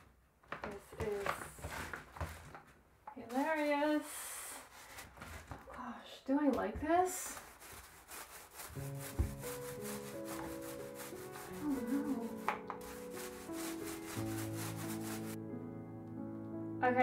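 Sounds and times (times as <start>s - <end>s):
paintbrush scratching on wall: 7.2s - 15.4s
background music with held notes: 8.7s - 17.0s.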